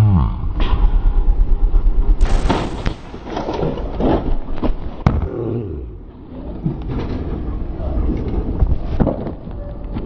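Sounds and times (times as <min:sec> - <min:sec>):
sharp bang: 0:02.2 - 0:04.2
motorbike crashing into car: 0:02.2 - 0:04.4
knocks and scrapes on road: 0:02.2 - 0:05.2.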